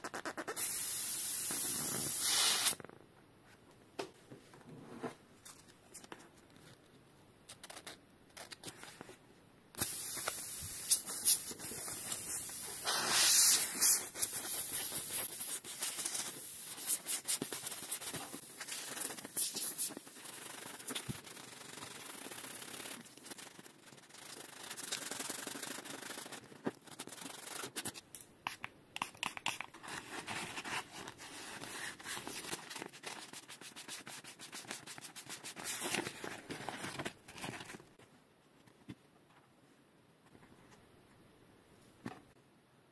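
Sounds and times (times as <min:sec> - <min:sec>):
sandpaper scuffing rubber: 0:09.8 - 0:27.8.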